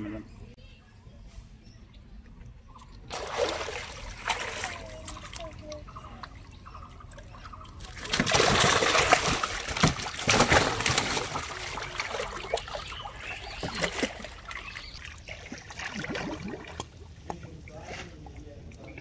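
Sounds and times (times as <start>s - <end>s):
fish thrashing and splashing: 2.8s - 6.4s, 7.0s - 17.2s.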